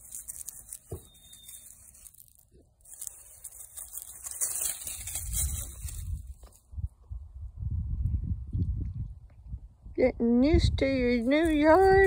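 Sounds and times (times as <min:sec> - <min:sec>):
feet rustling through leaves: 0:00.0 - 0:06.6
low microphone rumble: 0:05.7 - 0:12.0.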